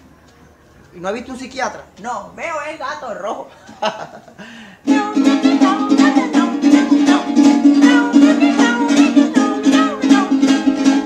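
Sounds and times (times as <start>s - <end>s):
acoustic guitar strumming: 4.8s - 11.0s.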